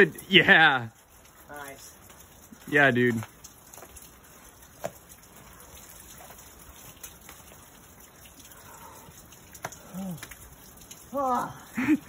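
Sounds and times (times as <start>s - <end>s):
person grunting: 9.8s - 10.2s.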